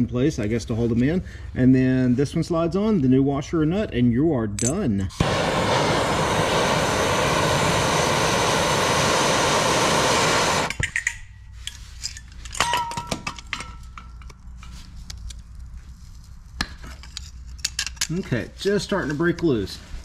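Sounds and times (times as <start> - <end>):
gas torch burning: 5.1 - 10.8
metal tools clinking: 10.8 - 14.8.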